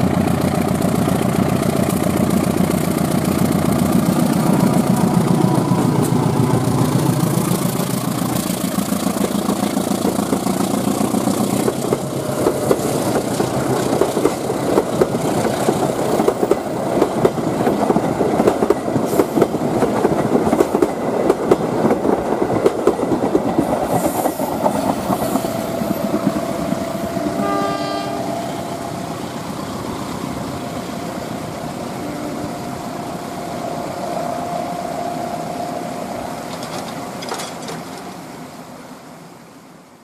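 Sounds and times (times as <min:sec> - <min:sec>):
train wheels clattering: 0:00.0 - 0:32.0, 0:36.2 - 0:38.3
steady whine: 0:24.4 - 0:37.6
train horn blast: 0:25.2 - 0:29.6, 0:31.8 - 0:36.6.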